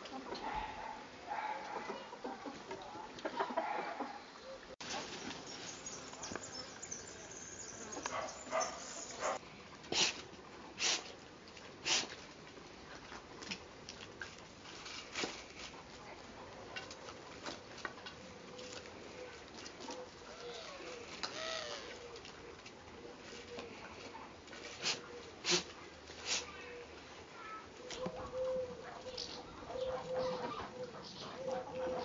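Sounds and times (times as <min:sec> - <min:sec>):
puppies scuffling and scratching: 0:11.4 - 0:25.3.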